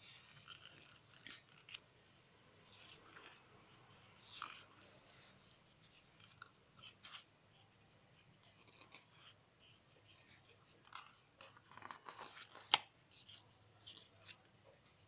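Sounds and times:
book pages turning: 0:00.0 - 0:01.9, 0:08.4 - 0:15.0.

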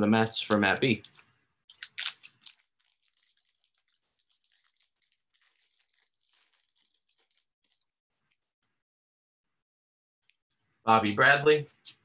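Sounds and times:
trading cards rustling and ticking: 0:00.3 - 0:08.4.

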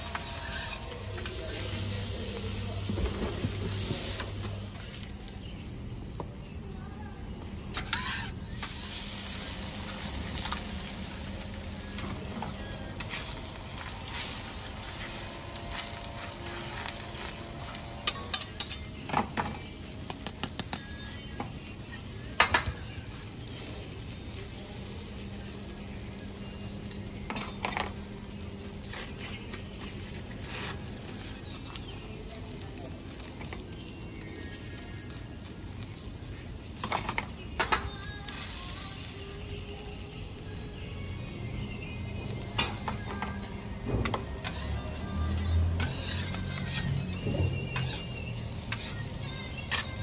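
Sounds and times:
metal spatulas scraping griddle: 0:00.0 - 0:04.4, 0:07.7 - 0:10.6, 0:13.0 - 0:18.9, 0:30.4 - 0:30.9, 0:44.1 - 0:50.0
meat and egg sizzling on griddle: 0:00.0 - 0:50.0.

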